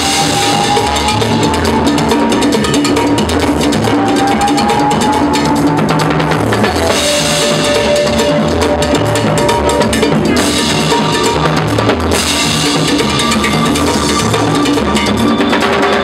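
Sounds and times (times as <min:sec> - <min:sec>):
latin band playing: 0:00.0 - 0:16.0
timbales played with sticks: 0:00.0 - 0:16.0
low bass line: 0:05.4 - 0:14.5.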